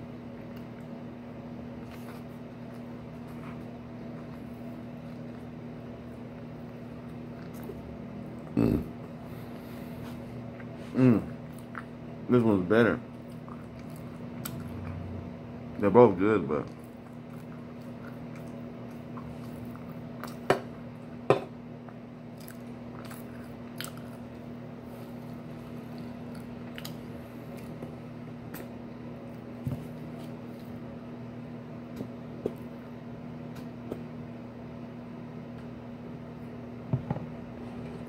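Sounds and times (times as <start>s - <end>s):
steady low hum: 0.0s - 38.0s.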